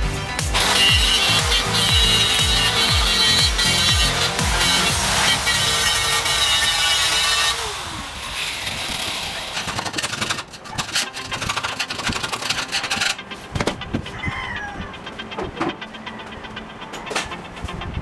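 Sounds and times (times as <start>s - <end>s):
angle grinder winding down: 0.5s - 13.2s
tool scraping and knocking steel: 8.9s - 13.9s.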